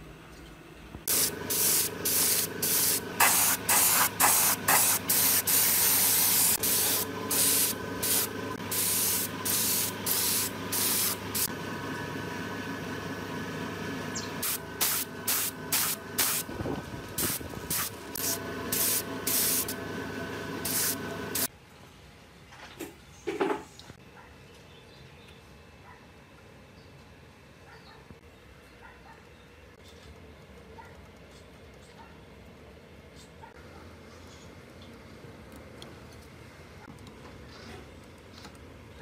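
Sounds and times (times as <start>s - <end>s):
steady hum: 0.7s - 21.5s
paint spray gun hissing: 1.1s - 11.5s, 14.1s - 16.6s, 17.2s - 21.5s.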